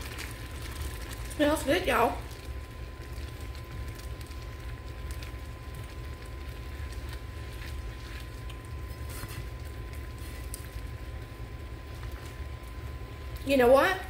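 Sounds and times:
corn simmering in water: 0.0 - 14.0
steady low hum: 0.0 - 14.0.

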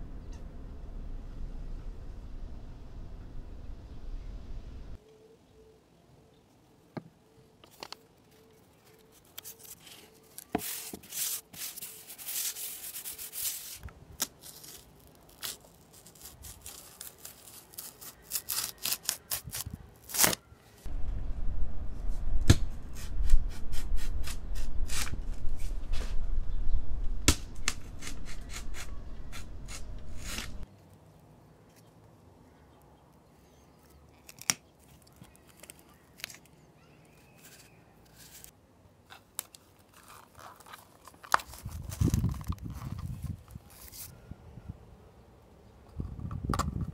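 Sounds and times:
loud low rumble: 0.0 - 5.0, 20.9 - 28.0
cardboard rustling: 7.7 - 20.4.

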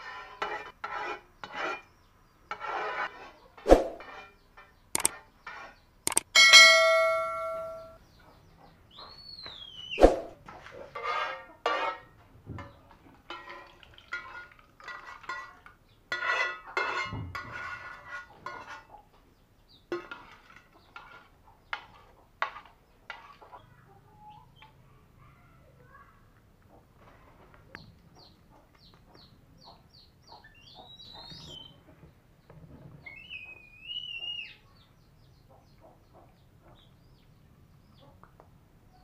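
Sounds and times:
metal spoon clinking on pots: 6.1 - 8.0, 13.3 - 18.9
bell-like ding: 6.4 - 8.0.

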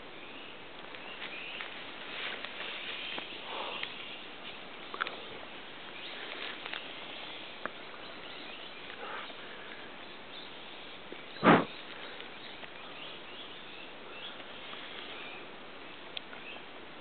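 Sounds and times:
outdoor background hiss: 0.0 - 17.0
loud sudden thump: 11.4 - 11.7.

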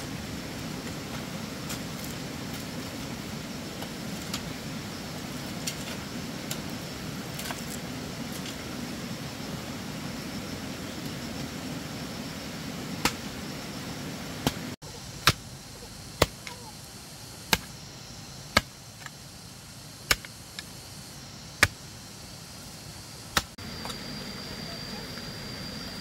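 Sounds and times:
hand hoe chopping stony earth: 15.2 - 15.5, 17.5 - 17.7, 20.1 - 20.3, 23.4 - 23.6.

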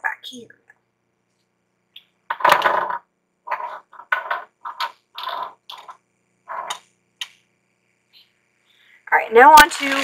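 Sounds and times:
plastic packaging clattering: 9.6 - 10.0.

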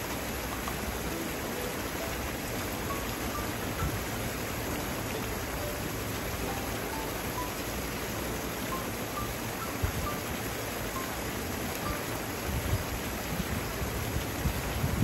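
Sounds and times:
paddle-wheel aerator splashing water: 0.0 - 15.0.

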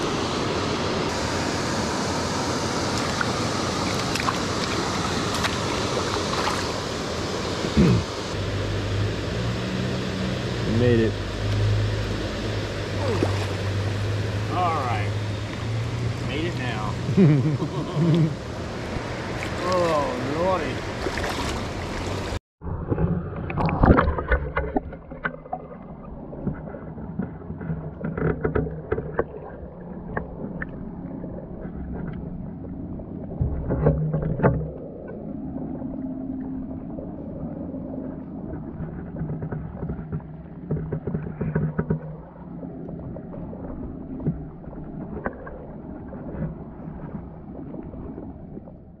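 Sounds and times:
muffled underwater rush of water: 0.0 - 49.0
open-air water rushing: 0.0 - 49.0
underwater clicks and knocks: 22.8 - 37.3, 38.0 - 48.8.

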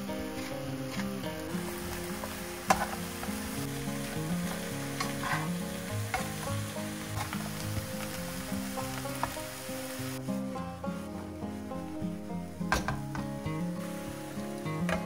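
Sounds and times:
food sizzling in hot oil: 0.0 - 15.0
utensil clicking against pan: 2.1 - 9.5.

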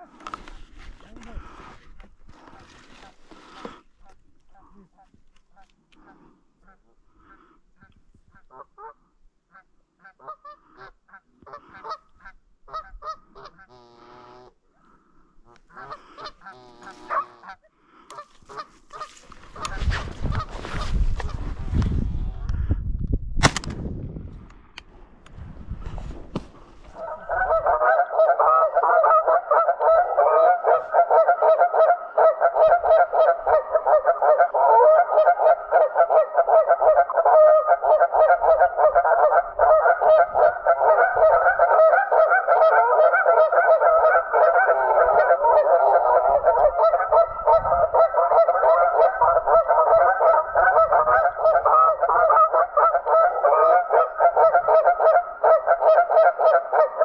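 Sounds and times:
geese honking: 8.3 - 14.6, 15.5 - 20.5, 26.9 - 57.0.

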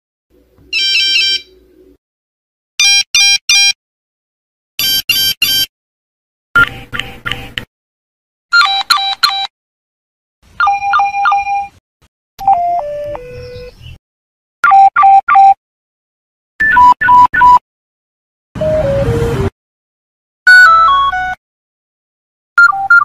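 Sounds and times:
phone alert beeps: 0.8 - 1.5, 8.6 - 9.5, 10.6 - 11.7, 12.4 - 13.7, 22.6 - 23.0.

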